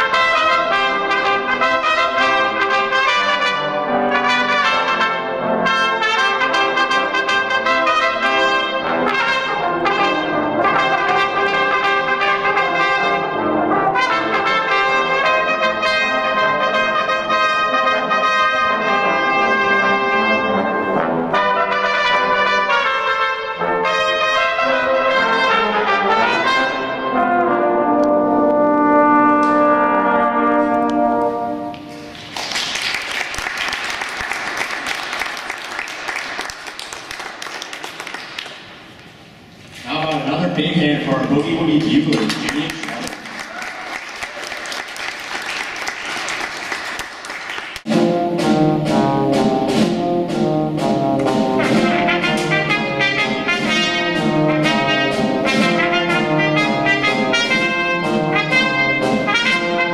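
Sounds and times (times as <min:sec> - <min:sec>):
trumpets playing a lively tune: 0:00.0 - 0:31.9, 0:47.8 - 0:59.9
band with drums: 0:47.9 - 0:59.9.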